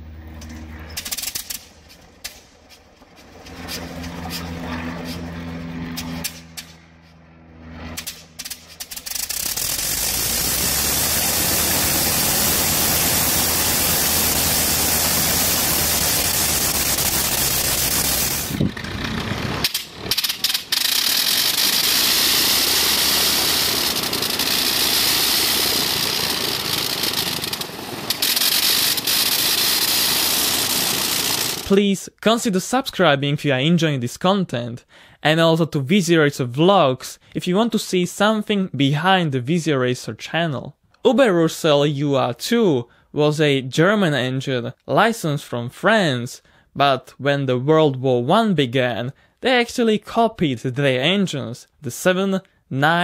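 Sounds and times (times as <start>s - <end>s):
rotary aircraft engine running: 0.0s - 31.8s
aircraft engine popping and coughing: 0.4s - 8.9s.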